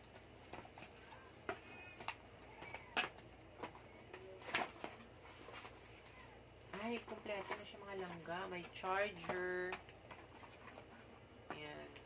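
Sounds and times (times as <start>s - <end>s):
packaging rustling: 0.0s - 11.3s.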